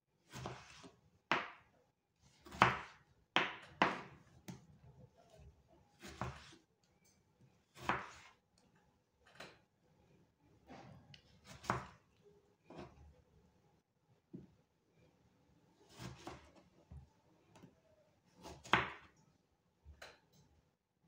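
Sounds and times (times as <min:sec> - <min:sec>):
knife cutting on wooden board: 0:00.3 - 0:01.6, 0:06.0 - 0:06.6, 0:07.7 - 0:08.4, 0:11.4 - 0:12.0, 0:15.9 - 0:16.6.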